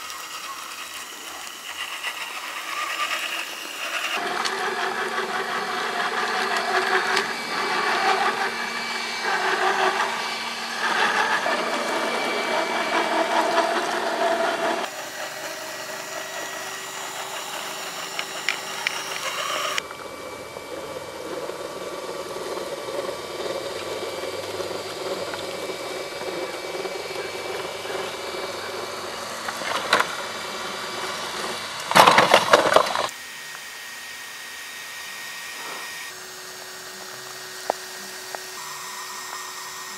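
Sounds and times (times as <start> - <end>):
electric motor whine: 0.0 - 39.9
toy truck crashing onto its side: 31.9 - 33.1.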